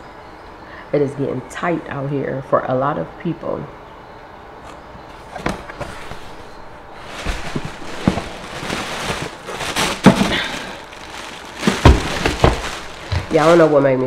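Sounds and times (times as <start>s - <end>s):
cardboard box being opened: 5.2s - 13.8s
plastic bag crinkling: 5.4s - 14.0s
cardboard knocks: 7.2s - 10.5s, 11.6s - 13.4s.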